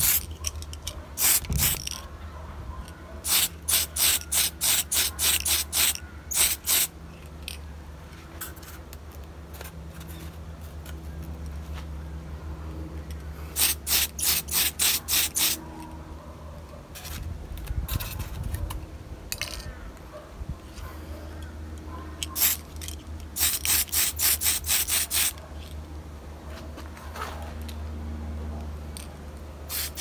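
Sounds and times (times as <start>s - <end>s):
aerosol spray can hissing: 0.0s - 0.2s, 1.2s - 1.8s, 3.3s - 6.9s, 13.6s - 15.6s, 23.4s - 25.4s, 29.7s - 30.0s.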